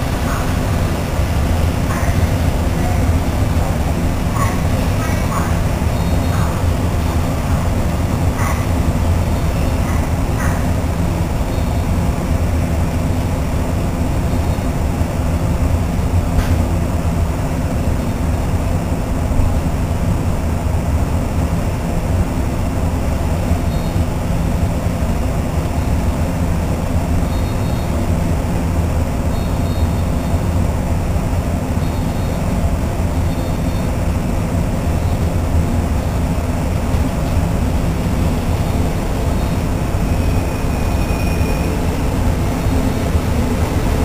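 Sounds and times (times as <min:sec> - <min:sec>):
low rumble of approaching train: 0:00.0 - 0:44.0
faint high-pitched beeps: 0:39.3 - 0:41.8.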